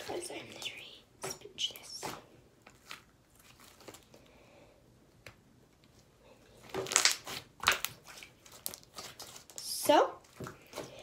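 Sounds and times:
slime squishing in hands: 1.8 - 4.1, 6.6 - 11.0.

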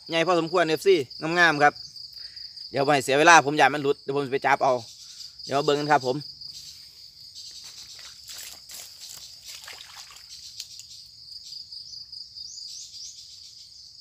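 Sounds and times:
crickets trilling: 0.0 - 14.0
footsteps through wet grass and mud: 7.4 - 10.8.

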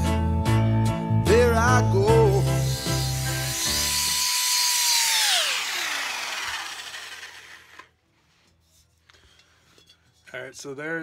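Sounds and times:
electric drill whining: 2.4 - 7.9.

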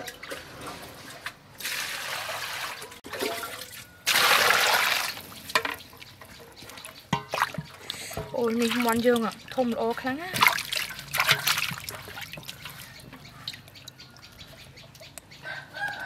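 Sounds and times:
light water splashing: 1.1 - 15.3
water pouring into basin: 1.6 - 5.3, 10.4 - 12.9.

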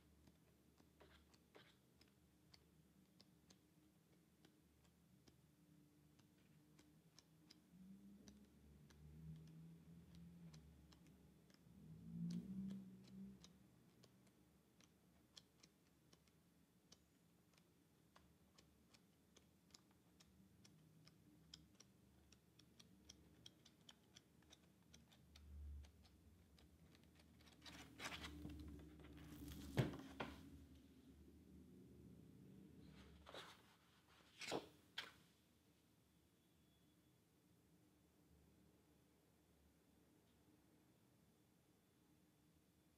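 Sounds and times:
faint even ticking: 0.0 - 29.6
book pages turning: 27.4 - 30.5, 33.0 - 35.2.

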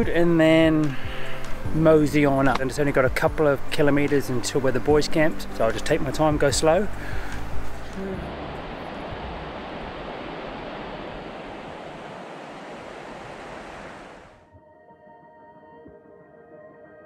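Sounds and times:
river water flowing over stones: 6.8 - 14.4.

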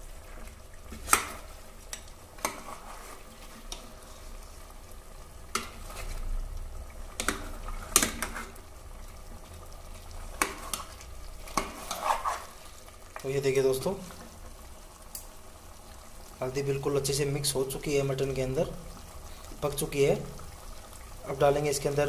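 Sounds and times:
meat sizzling: 0.0 - 22.0
ladle scraping metal pot: 0.9 - 3.8, 7.2 - 8.6, 10.4 - 12.6.

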